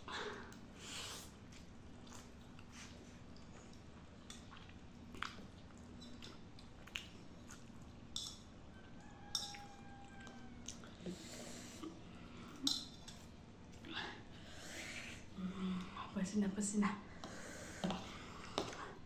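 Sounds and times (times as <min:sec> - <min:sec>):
chewing: 0:01.3 - 0:13.9.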